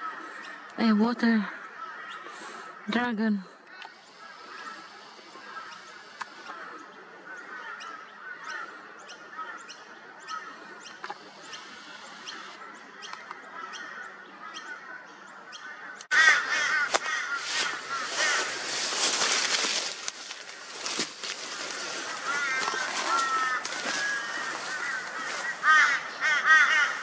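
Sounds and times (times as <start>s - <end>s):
birds chirping: 0.0s - 27.0s
rustling noise: 16.3s - 26.2s.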